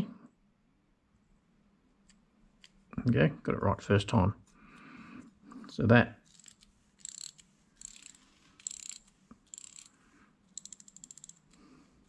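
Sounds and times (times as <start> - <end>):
bicycle freewheel ratcheting clicks: 6.3 - 9.9, 10.5 - 11.6.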